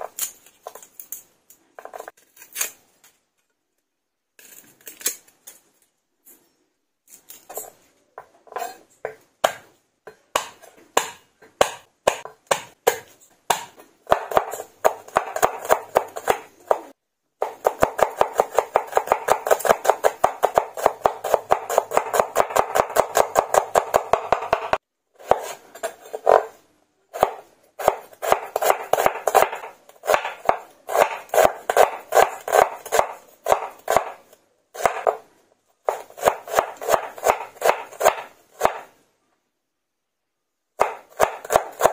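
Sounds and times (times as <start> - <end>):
knife slicing onion: 8.3 - 39.0, 40.8 - 41.9
knife chopping on wooden board: 8.6 - 26.5, 27.2 - 34.2, 34.8 - 35.2, 35.9 - 38.9, 40.8 - 41.9.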